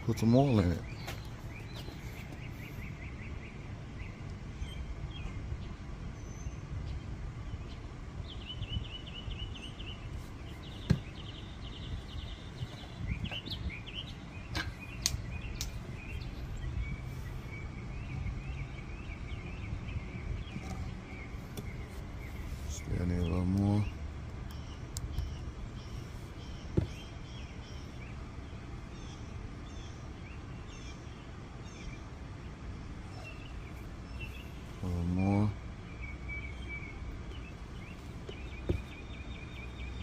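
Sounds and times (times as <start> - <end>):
low background rumble: 0.0 - 40.0
small birds chirping: 0.0 - 40.0
sharp clicks: 15.0 - 15.8.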